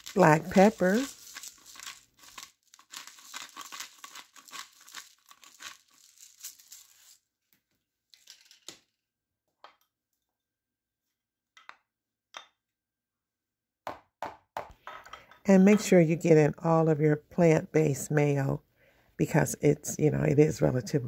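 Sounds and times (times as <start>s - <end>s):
pepper grinder crackling: 0.0s - 7.2s.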